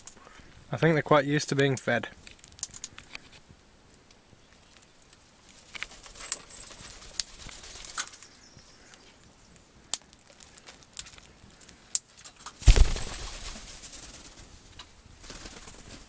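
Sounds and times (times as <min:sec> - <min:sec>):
wings flapping: 0:05.4 - 0:08.3, 0:12.4 - 0:16.0.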